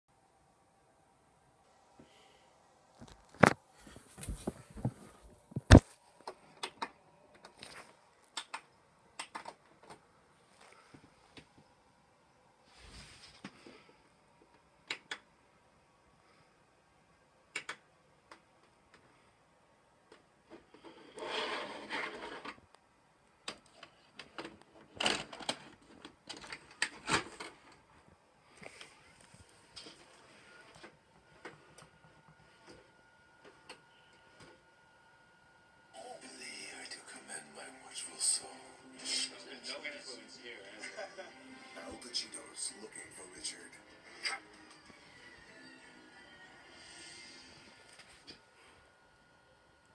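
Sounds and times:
vcr mechanical clicks and clunks: 23.4s - 27.8s.

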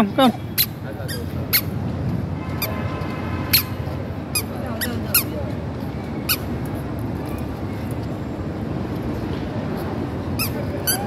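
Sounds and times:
squeaky shoes squeaking: 0.3s - 1.8s, 4.3s - 6.6s, 10.4s - 11.0s.

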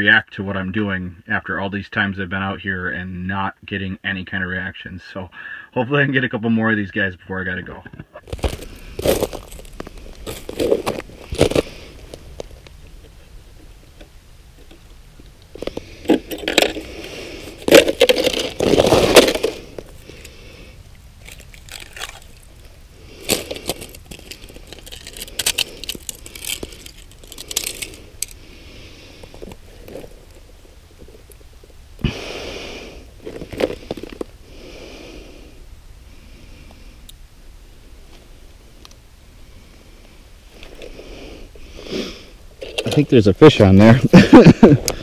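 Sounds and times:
ice and snow crunching and scraping: 8.2s - 13.3s, 15.5s - 34.8s.

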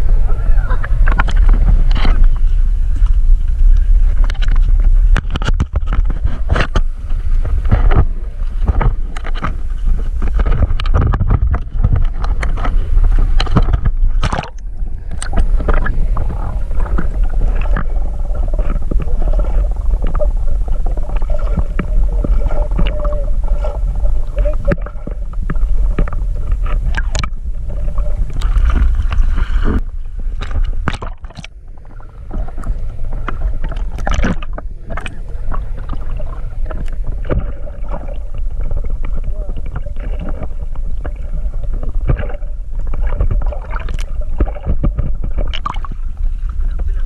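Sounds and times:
heavy low rumble: 0.0s - 47.0s
water gurgling and splashing: 0.0s - 47.0s.

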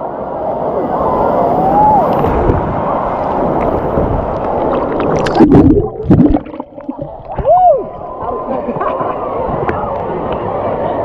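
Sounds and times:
wave water rushing and churning: 0.0s - 11.0s
sharp splashes: 4.4s - 7.5s.

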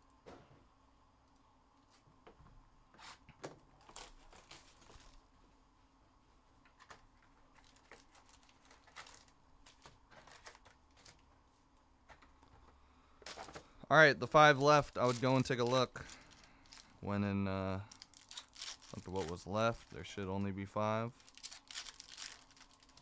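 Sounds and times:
foil wrappers crinkling: 3.8s - 5.2s, 6.8s - 11.3s, 13.2s - 17.1s, 17.7s - 23.0s
trading cards clicking and rustling: 6.7s - 11.3s, 14.3s - 16.9s, 17.9s - 20.5s, 21.1s - 23.0s.

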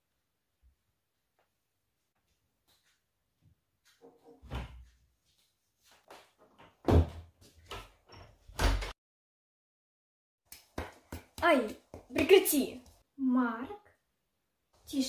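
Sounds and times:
door knocks and thuds: 6.8s - 7.3s.

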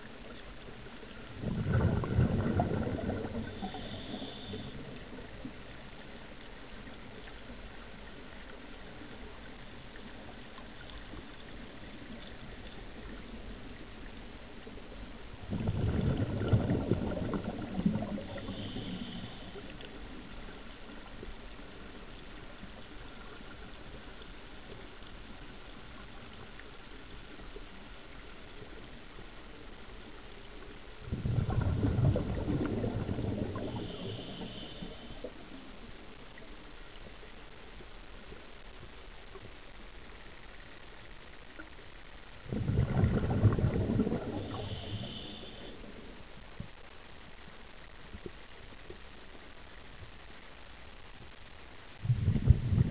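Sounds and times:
underwater water rush: 0.0s - 37.5s, 39.2s - 46.6s, 51.9s - 52.9s
diver's exhaled bubbling: 1.3s - 4.7s, 15.4s - 19.5s, 31.0s - 35.2s, 42.4s - 45.7s, 52.0s - 52.9s.

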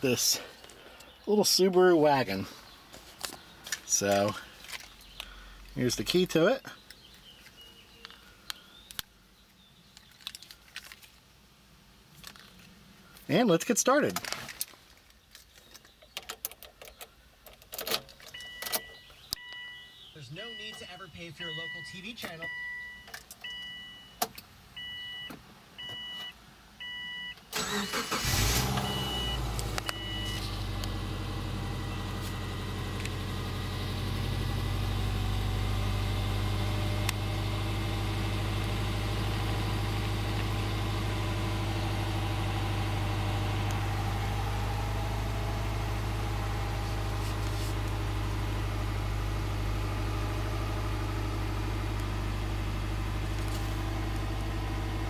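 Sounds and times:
dashboard warning chime beeping: 18.4s - 24.2s, 24.8s - 27.4s, 28.7s - 30.6s
car engine idling: 27.6s - 55.0s.

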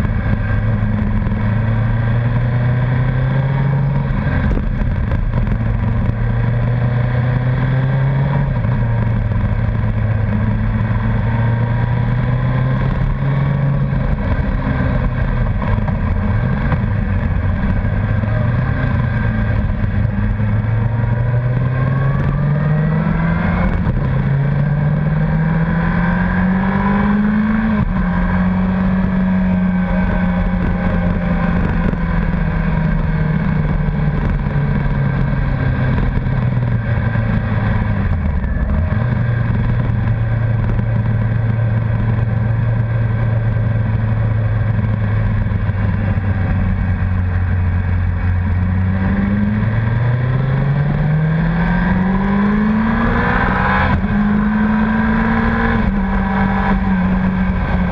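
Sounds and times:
motorcycle engine running: 0.0s - 57.9s.

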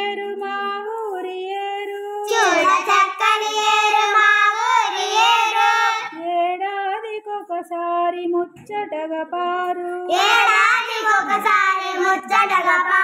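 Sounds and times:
child singing: 0.2s - 6.4s, 9.8s - 13.0s.

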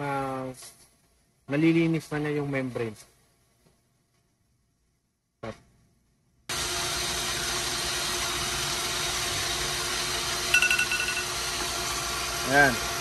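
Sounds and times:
pump motor running: 6.5s - 13.0s
short high beeps: 10.5s - 11.3s.

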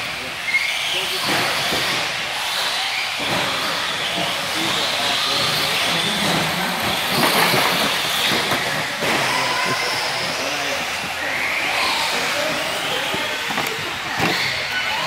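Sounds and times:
radio-controlled car motor whine: 0.0s - 15.0s.

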